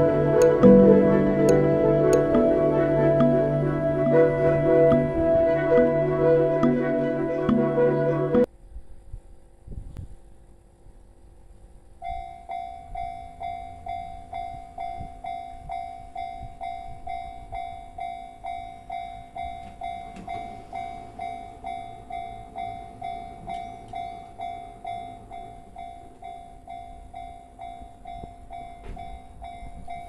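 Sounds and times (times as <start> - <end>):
level-crossing warning bell clanging: 0.0 - 5.2, 12.0 - 30.0.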